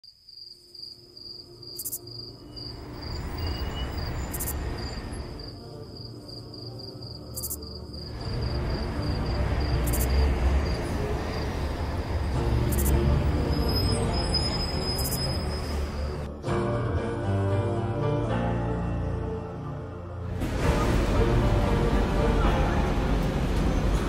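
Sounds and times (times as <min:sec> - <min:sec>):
crickets chirping: 0:00.0 - 0:16.2.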